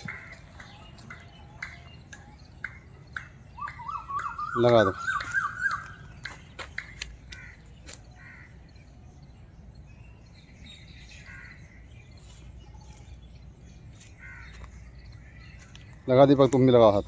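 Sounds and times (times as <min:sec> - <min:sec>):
crows cawing faintly: 0:00.0 - 0:01.8, 0:03.6 - 0:08.9, 0:11.2 - 0:11.9, 0:14.0 - 0:16.8.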